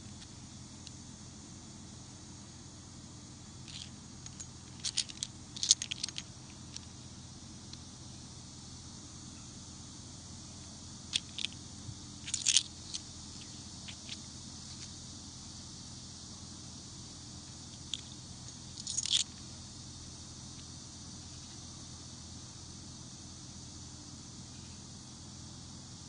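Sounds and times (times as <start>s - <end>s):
metal coin pendants clicking: 3.7s - 6.8s, 18.8s - 19.3s.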